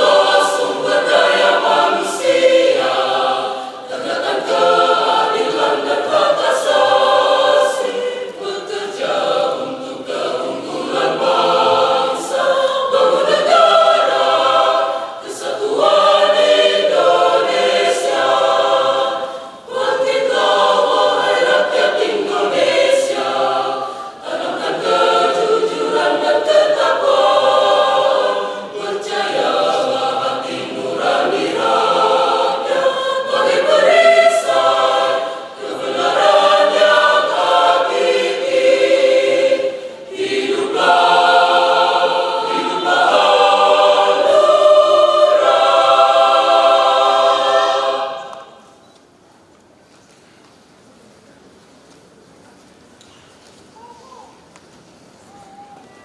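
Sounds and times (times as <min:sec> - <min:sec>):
mixed choir singing: 0:00.0 - 0:48.9.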